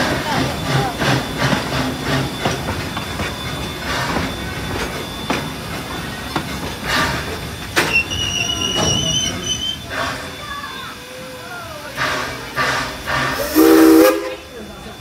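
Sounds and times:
wheels clacking over rail joints: 0:00.0 - 0:10.4
steam train rumble: 0:00.0 - 0:15.0
high-pitched wheel squeal: 0:07.8 - 0:10.6.

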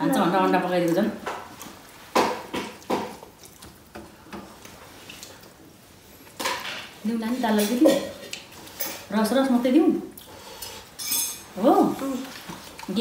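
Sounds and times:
dishes and cutlery clinking: 0:06.4 - 0:09.1, 0:10.6 - 0:11.5.

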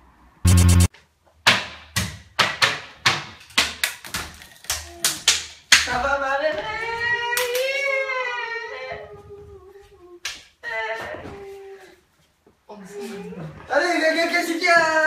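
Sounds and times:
transition sound effect: 0:00.4 - 0:00.9.

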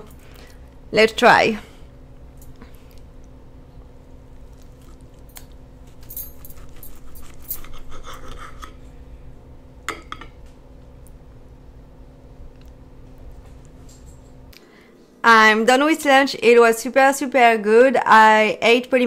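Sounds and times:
cutlery scraping a plate: 0:06.6 - 0:08.8.

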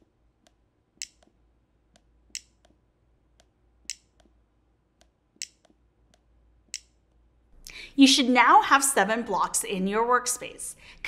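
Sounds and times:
sharp mouse clicks: 0:00.4 - 0:02.8, 0:03.4 - 0:04.4, 0:05.0 - 0:07.0.

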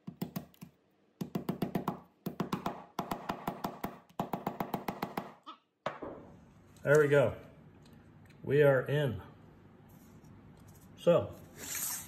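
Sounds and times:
mallet tapping plywood: 0:01.2 - 0:05.4.

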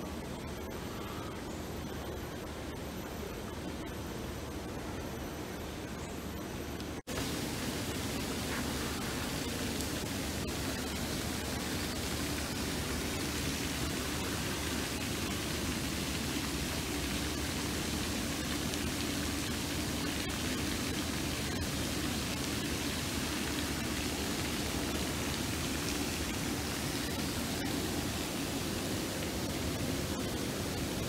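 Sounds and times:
steady rushing noise: 0:00.0 - 0:19.2.

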